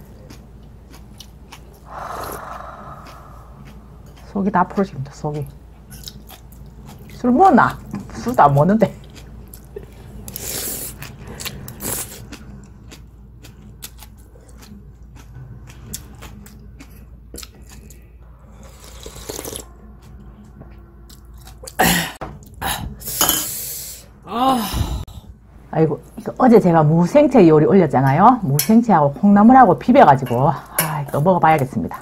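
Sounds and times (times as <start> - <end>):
person chewing: 0.0 - 4.4, 5.8 - 7.2, 9.0 - 20.1.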